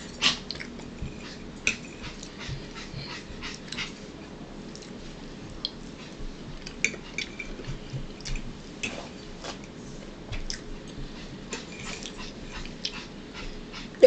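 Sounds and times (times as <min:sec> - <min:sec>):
person chewing food: 0:10.4 - 0:11.0.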